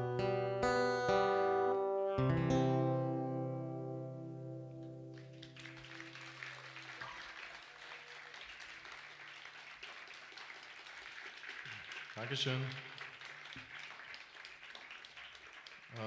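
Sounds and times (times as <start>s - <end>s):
acoustic guitar chord ringing: 0.0s - 5.2s
quiet applause: 5.1s - 16.0s.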